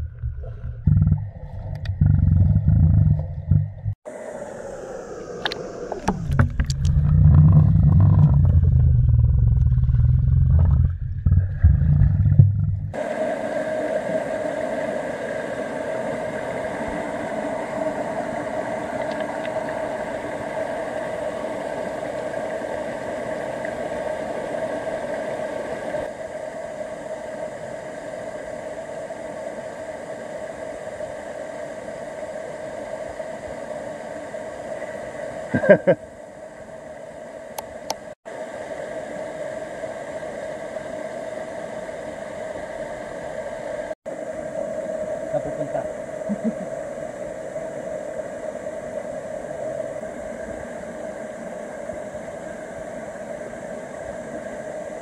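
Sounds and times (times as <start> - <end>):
muffled underwater rumble: 0.0 - 13.1, 44.4 - 55.0
stream flowing over rocks: 13.0 - 26.1.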